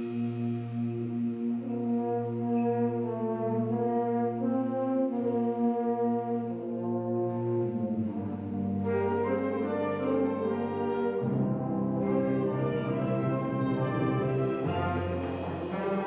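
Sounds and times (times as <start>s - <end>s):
held brass chords: 0.0s - 16.0s
concert band playing: 8.8s - 16.0s.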